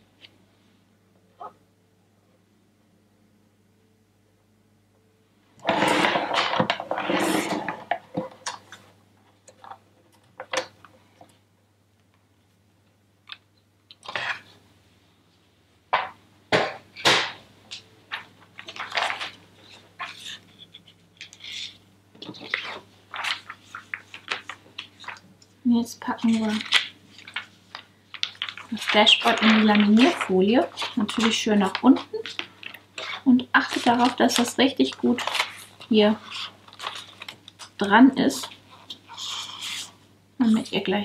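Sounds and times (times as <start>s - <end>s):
paper rustling: 17.0s - 25.3s, 26.0s - 40.0s.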